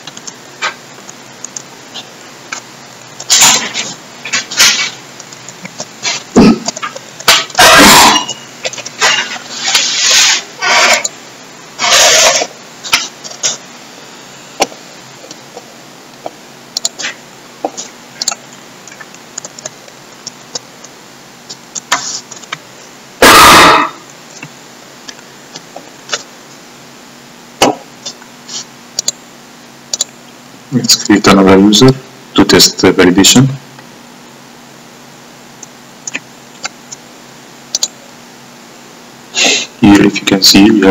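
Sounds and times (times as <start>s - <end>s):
computer keyboard typing: 0.0s - 0.4s, 18.2s - 20.9s, 29.0s - 29.2s, 37.7s - 38.0s
mouse clicks: 29.0s - 29.2s, 37.7s - 38.0s.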